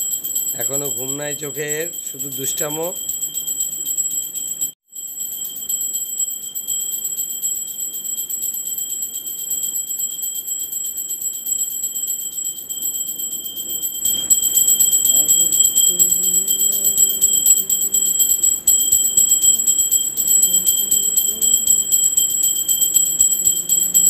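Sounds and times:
bell ringing rapidly: 0.0 - 24.0.

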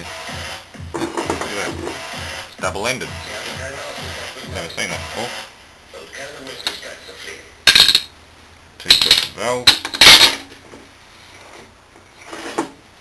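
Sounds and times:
metal parts clattering on workbench: 7.7 - 8.1, 8.9 - 10.5.

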